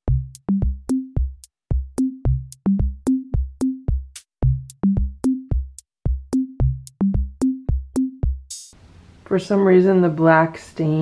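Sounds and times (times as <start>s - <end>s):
electronic music drum machine beat: 0.1s - 8.8s.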